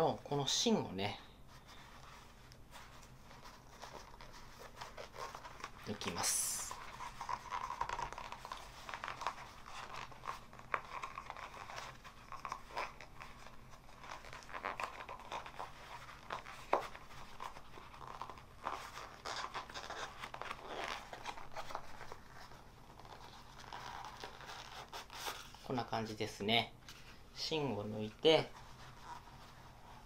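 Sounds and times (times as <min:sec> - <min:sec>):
paper and cardboard crinkling: 0:01.6 - 0:25.8.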